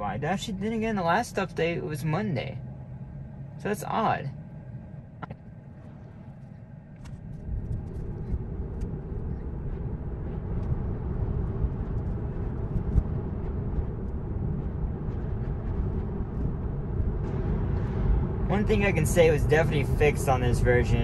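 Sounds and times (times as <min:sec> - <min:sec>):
tyre and road noise: 0:05.2 - 0:21.0.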